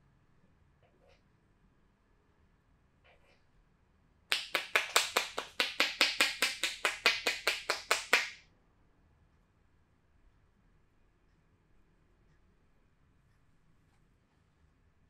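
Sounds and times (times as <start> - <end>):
hands slapping in massage: 4.3 - 8.4.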